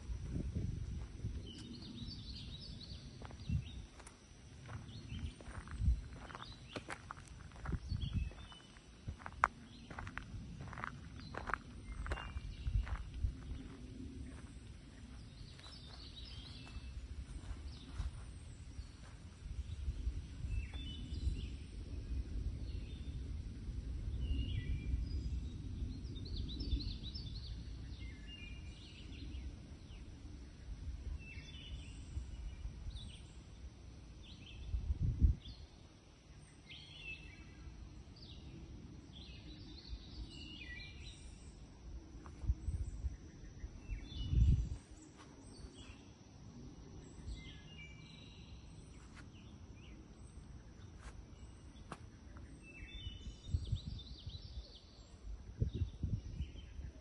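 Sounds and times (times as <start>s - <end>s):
wind rumble on microphone: 0.0s - 57.0s
birds chirping: 1.4s - 21.7s.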